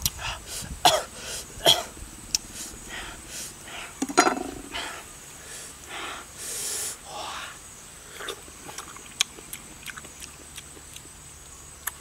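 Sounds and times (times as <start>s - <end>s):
crunchy fruit bites and chewing: 8.2s - 12.0s.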